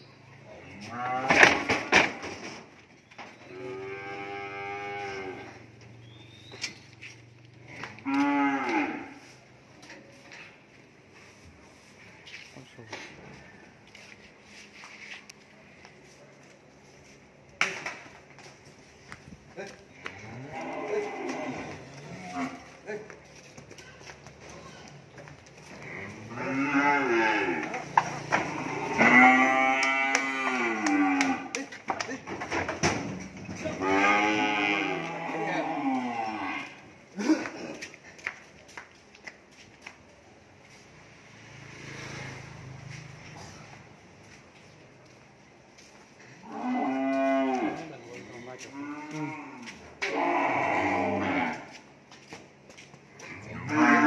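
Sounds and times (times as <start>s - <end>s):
cattle mooing: 3.5s - 5.6s, 7.8s - 9.2s, 25.7s - 31.6s, 33.7s - 36.8s, 46.4s - 47.9s, 48.8s - 51.7s, 53.4s - 54.0s.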